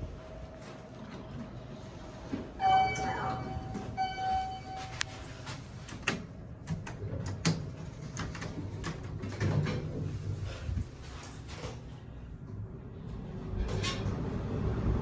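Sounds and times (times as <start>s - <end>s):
elevator doors closing hum: 0.0s - 15.0s
elevator chime tone: 2.6s - 5.5s.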